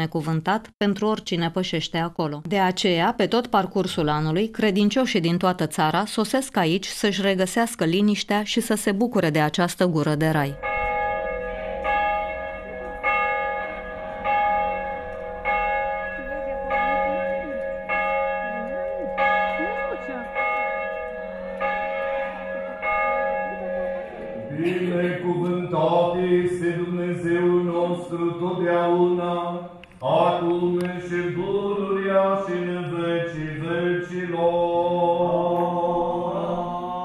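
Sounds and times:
steady held note: 10.6s - 20.4s
church bell tolling: 10.6s - 29.7s
voices chanting: 23.5s - 27.9s.

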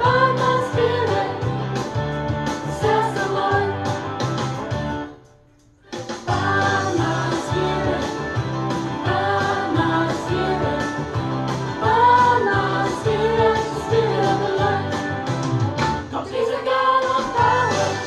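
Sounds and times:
guitar with steady beat: 0.0s - 5.2s, 5.8s - 16.1s
person singing: 6.2s - 8.4s, 16.1s - 18.0s.

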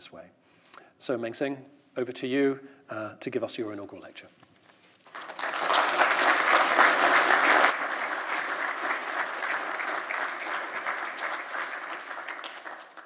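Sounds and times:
audience applauding: 5.0s - 13.0s.

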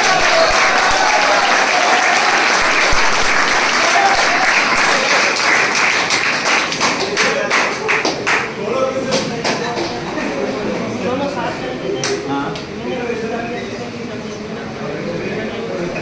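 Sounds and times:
people applauding: 0.0s - 10.4s.

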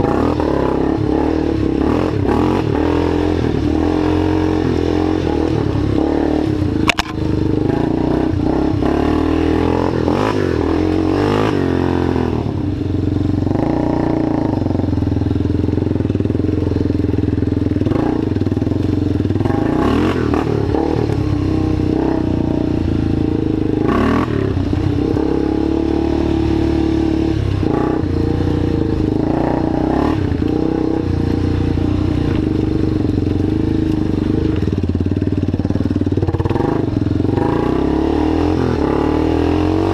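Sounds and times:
sharp click: 6.8s - 7.2s.

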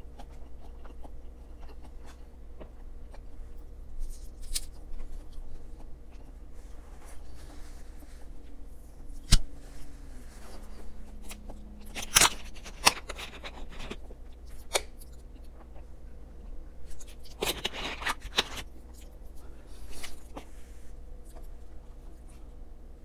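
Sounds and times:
chewing food: 0.0s - 6.5s.

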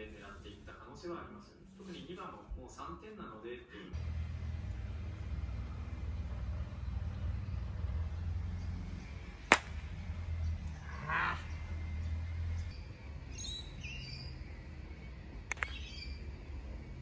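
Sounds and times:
birds chirping: 4.0s - 17.0s
mallet striking ball: 9.5s - 9.8s
bird caw: 10.9s - 11.6s.

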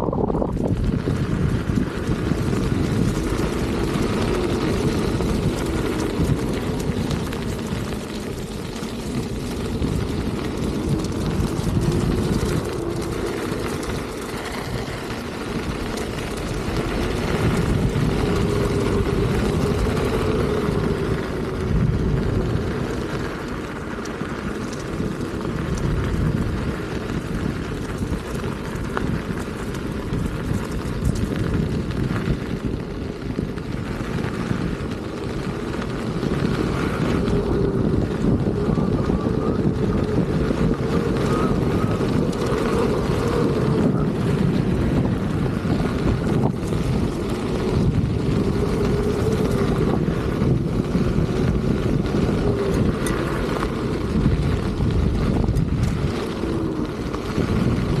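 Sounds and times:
wind rushing over microphone: 0.0s - 58.0s
electric motor whine: 33.6s - 58.0s.

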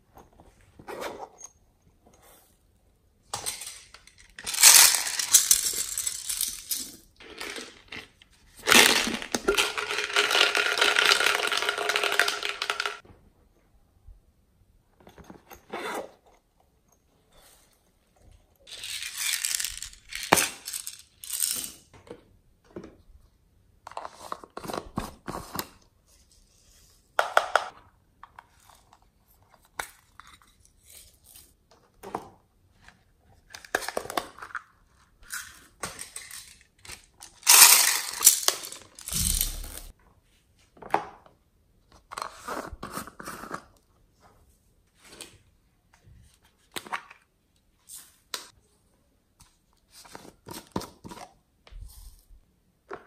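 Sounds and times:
plastic beads rattling and spilling: 3.5s - 13.0s, 18.7s - 21.8s, 37.2s - 39.9s.

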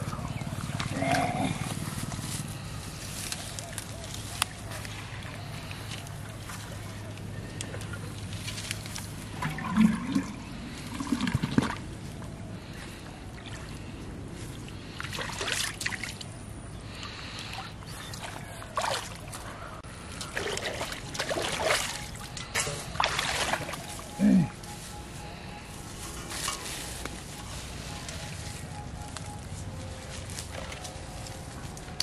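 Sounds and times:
water trickling and splashing: 4.9s - 12.0s, 13.1s - 16.3s, 16.9s - 24.5s.

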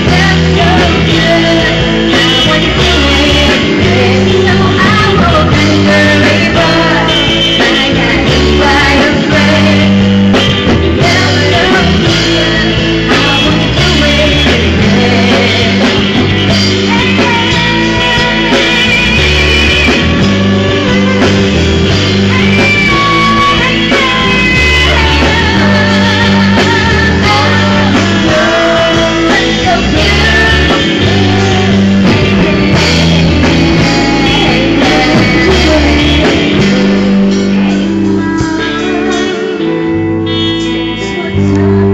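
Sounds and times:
live rock band playing: 0.0s - 41.9s
woman singing: 0.0s - 41.9s.

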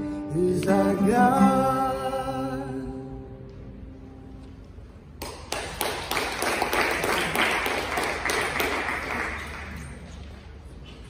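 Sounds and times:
small group clapping: 5.2s - 10.4s.

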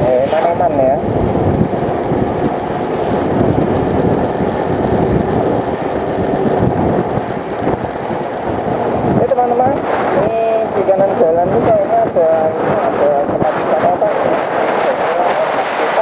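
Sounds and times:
wind rushing on microphone: 0.0s - 16.0s
motorcycle engine running: 0.7s - 9.6s.

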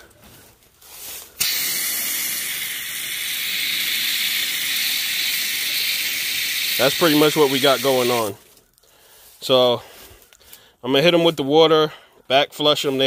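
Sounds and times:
hose spraying water on metal coil: 1.4s - 8.4s.

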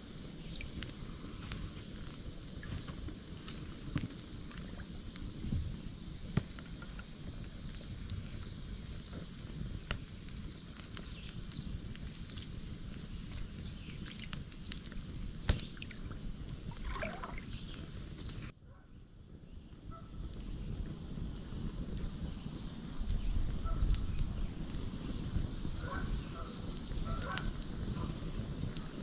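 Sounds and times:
sharp pops of fire: 0.0s - 18.5s, 19.7s - 29.0s
wood fire crackling: 0.0s - 18.5s, 19.2s - 29.0s.

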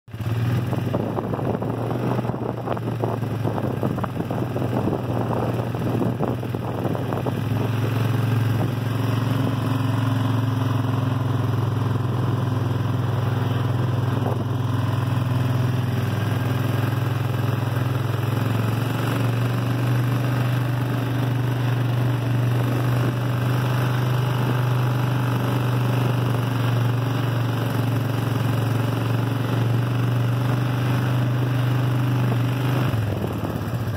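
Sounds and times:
small vehicle engine running: 0.1s - 33.9s.

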